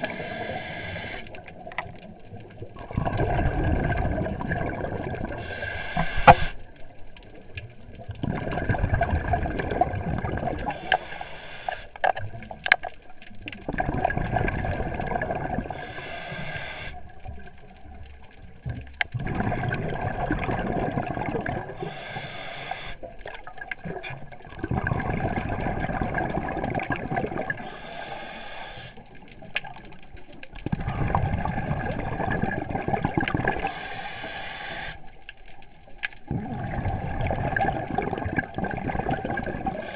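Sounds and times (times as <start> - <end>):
regulator inhale hiss: 0.0 - 1.6, 5.3 - 6.7, 10.6 - 12.0, 15.7 - 17.0, 21.7 - 23.1, 27.6 - 29.1, 33.6 - 35.2, 39.6 - 39.9
exhaled bubbles burbling: 1.4 - 11.0, 12.1 - 15.9, 17.0 - 22.0, 23.0 - 27.7, 29.1 - 33.8, 36.2 - 39.9.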